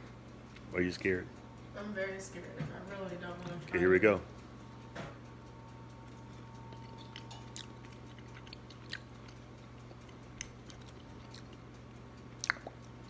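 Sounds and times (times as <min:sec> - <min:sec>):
steady low hum: 0:00.0 - 0:13.0
man chewing: 0:00.4 - 0:00.7, 0:05.7 - 0:13.0
wet mouth clicks: 0:12.4 - 0:13.0.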